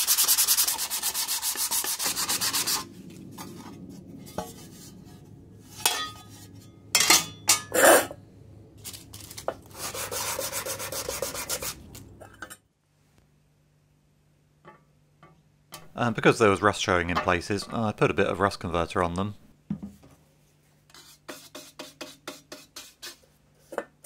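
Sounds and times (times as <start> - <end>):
sandpaper rasping on steel: 0.0 - 2.9, 9.3 - 11.8, 20.9 - 23.3.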